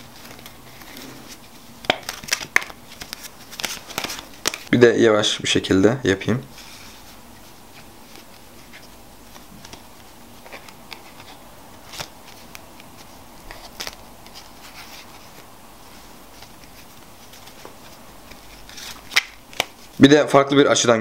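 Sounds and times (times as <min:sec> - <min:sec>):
faint steady hiss: 0:00.0 - 0:21.0
playing cards clicking and tapping: 0:01.8 - 0:04.7, 0:08.0 - 0:15.1, 0:16.4 - 0:19.9.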